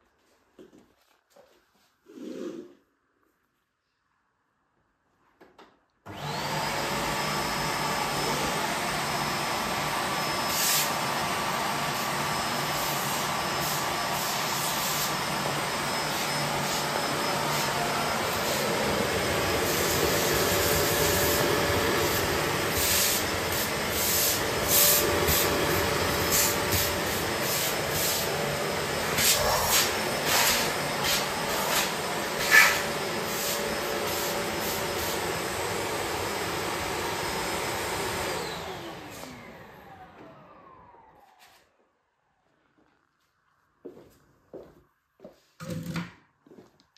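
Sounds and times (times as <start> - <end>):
vacuum cleaner running: 6.1 - 42.6.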